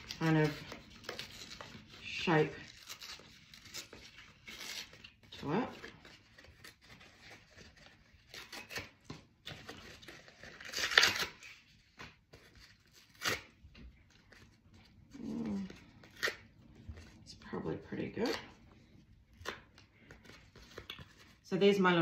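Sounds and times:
cardboard tearing: 0.0s - 17.2s.

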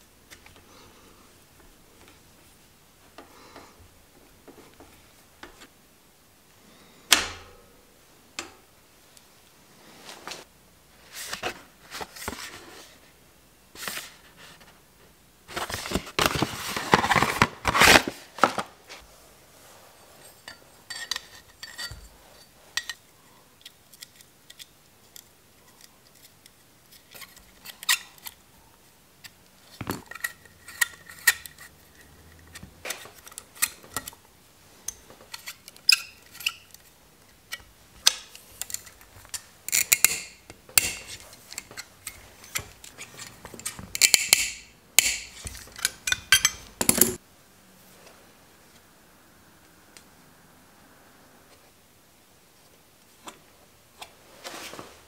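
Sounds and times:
cardboard packaging rustling: 15.5s - 19.1s.

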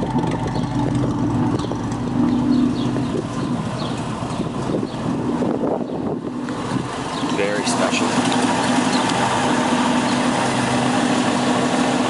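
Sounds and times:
car engine idling: 0.0s - 12.0s
bird chirps: 0.4s - 0.9s, 1.5s - 5.1s.

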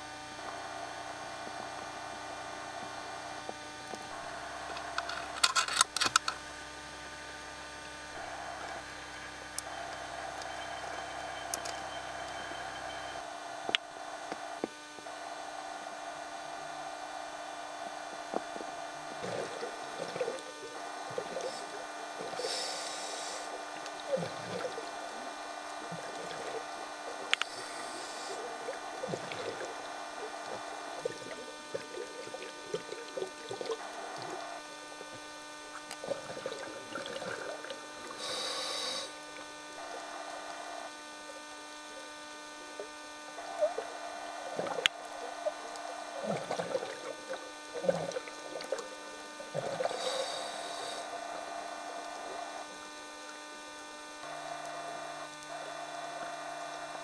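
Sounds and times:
steady underwater hum: 0.0s - 57.0s
regulator hissing inhalations: 21.4s - 23.6s, 38.1s - 39.2s, 49.7s - 51.2s
bubbly gurgling exhalations: 24.0s - 25.0s, 35.7s - 38.2s, 43.4s - 50.3s.

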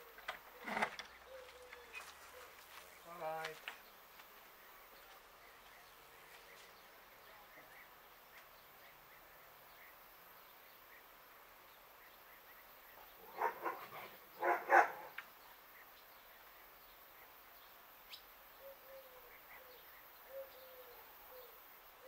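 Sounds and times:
dog barking: 13.3s - 15.2s.

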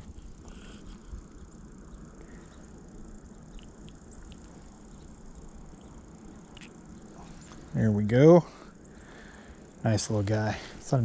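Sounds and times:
light handling ticks: 0.0s - 7.8s.

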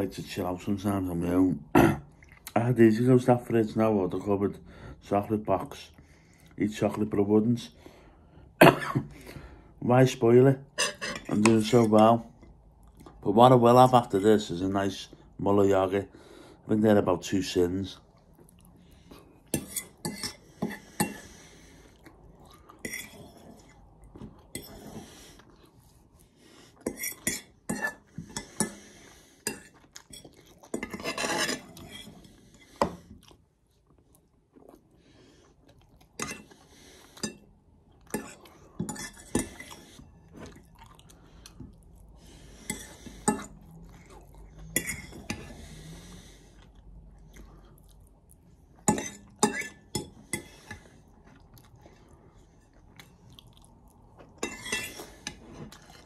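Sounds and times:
chewing: 2.1s - 2.6s, 18.1s - 20.0s, 21.8s - 28.8s, 29.4s - 56.0s
fork clinking against a bowl: 48.9s - 50.8s.

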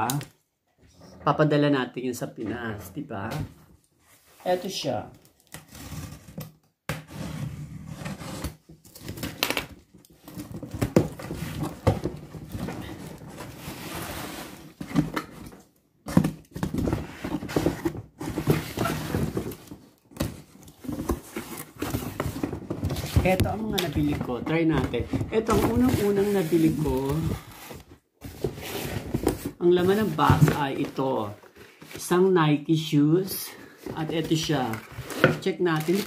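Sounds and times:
cardboard box rustling and knocking: 10.2s - 32.0s.

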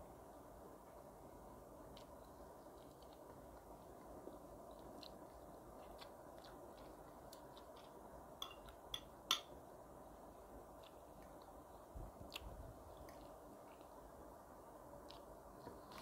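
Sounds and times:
chewing clicks: 1.9s - 8.8s, 12.3s - 14.0s
fork clinking on ceramic plate: 8.4s - 9.5s.

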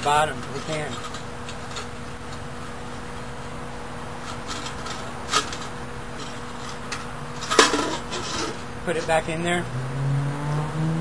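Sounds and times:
tin cans clattering: 0.0s - 2.4s, 4.2s - 9.2s
tin cans knocking and rubbing: 0.0s - 2.4s, 4.2s - 9.3s
steady low hum: 0.0s - 11.0s.

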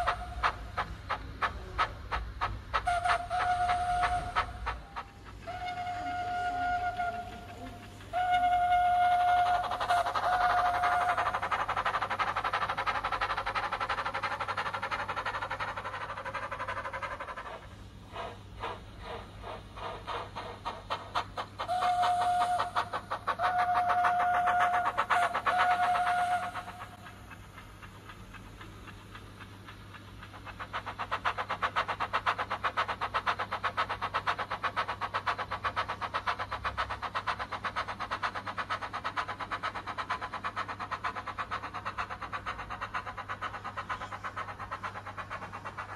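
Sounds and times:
steam hissing: 0.0s - 45.9s
steam locomotive chuffing: 0.0s - 45.9s
steam whistle: 2.8s - 11.4s, 21.6s - 27.1s.

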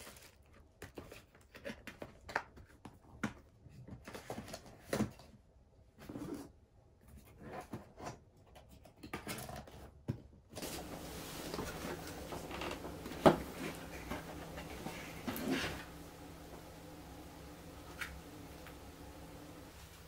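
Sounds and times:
cardboard boxes rustling: 10.6s - 20.0s
steady hiss: 10.6s - 20.0s.

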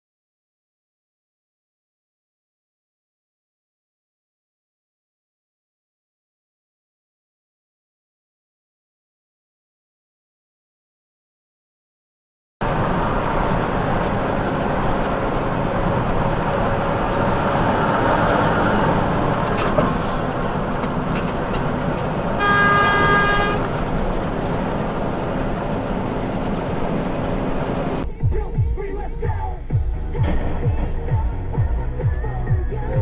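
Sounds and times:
traffic noise: 12.6s - 33.0s
car horn honking: 22.2s - 24.0s.

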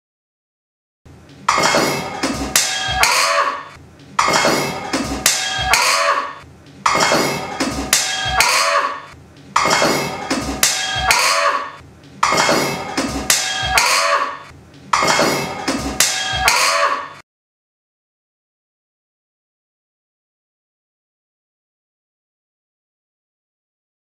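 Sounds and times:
looped metallic percussion clanks: 1.4s - 3.5s, 4.2s - 6.2s, 6.8s - 11.5s, 12.2s - 14.2s, 14.9s - 17.0s.

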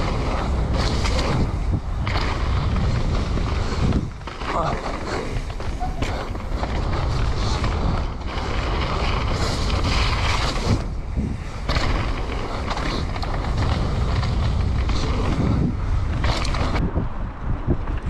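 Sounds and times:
bike clicks and rattles: 0.0s - 18.0s
bike tyres rolling on dirt: 0.0s - 18.0s
wind buffeting the microphone: 0.0s - 18.0s.

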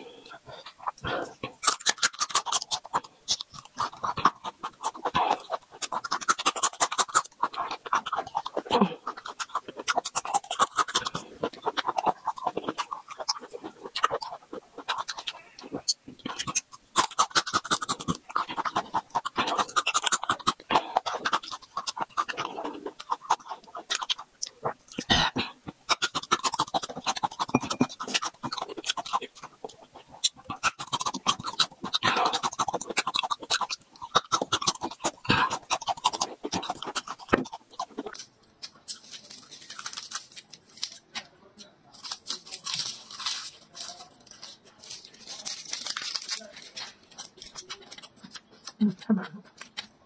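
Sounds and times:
heavy breathing: 0.0s - 1.6s
crunchy chewing: 0.0s - 50.0s
wet mouth sounds: 0.0s - 50.0s.

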